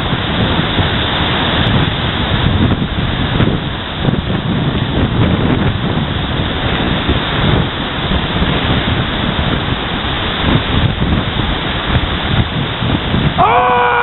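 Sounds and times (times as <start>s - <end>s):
river pouring: 0.0s - 14.0s
wind buffeting microphone: 0.0s - 14.0s
person calling out: 13.4s - 14.0s.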